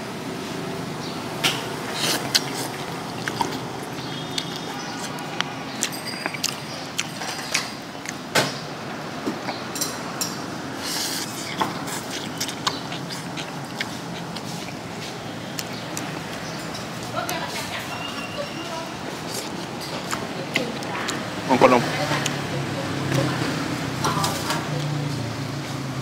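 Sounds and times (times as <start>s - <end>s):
steady background hum: 0.0s - 24.8s
tableware and utensils clinking: 4.1s - 7.8s, 9.6s - 10.5s.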